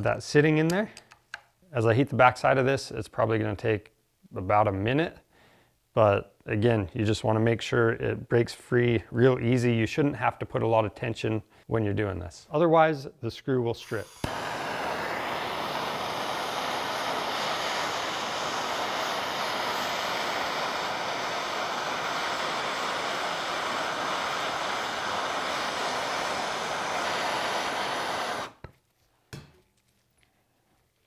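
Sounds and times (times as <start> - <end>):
gas torch flame hissing: 13.8 - 28.7.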